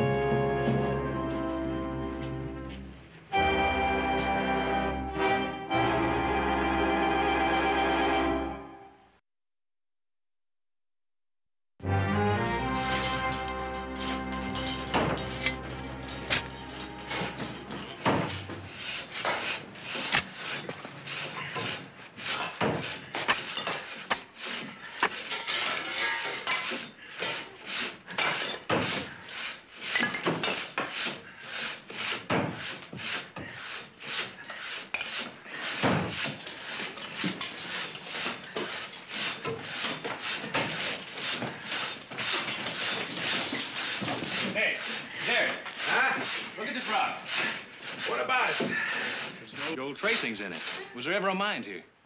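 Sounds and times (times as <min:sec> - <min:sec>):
shovels scraping through rubble: 0:12.6 - 0:51.0.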